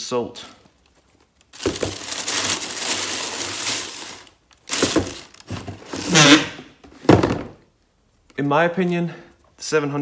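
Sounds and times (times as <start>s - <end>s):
tissue paper rustling and crinkling: 1.5s - 6.1s
shoes being set down: 1.6s - 2.1s, 4.7s - 7.6s.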